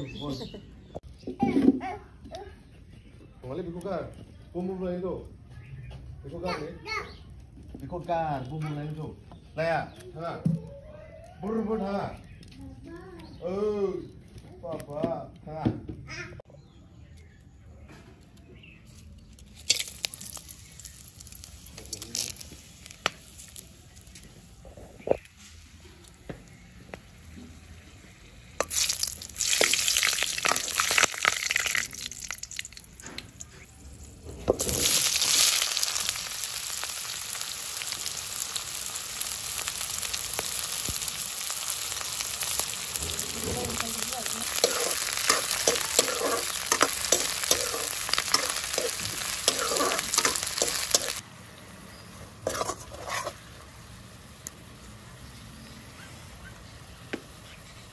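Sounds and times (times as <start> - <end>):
spices frying in hot oil: 18.5 - 57.9
onions sizzling in oil: 19.2 - 56.0.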